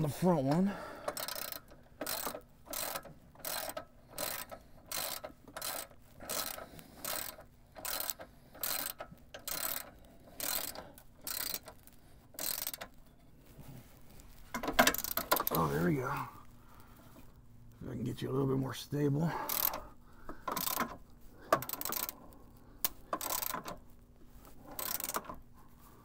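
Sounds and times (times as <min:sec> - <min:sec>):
hand ratchet clicking: 0:00.0 - 0:13.0, 0:14.6 - 0:15.8, 0:19.4 - 0:22.2, 0:22.8 - 0:23.8, 0:24.6 - 0:25.5.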